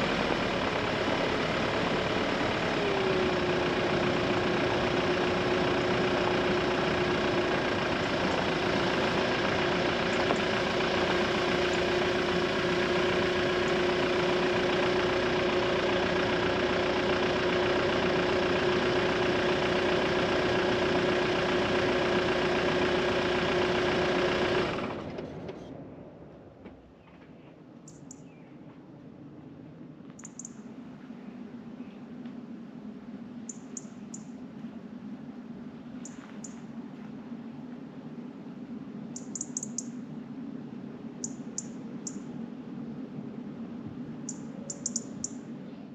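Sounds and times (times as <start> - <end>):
car engine running inside cabin: 0.0 - 26.5
faint high chirps: 39.1 - 40.0, 44.2 - 45.9.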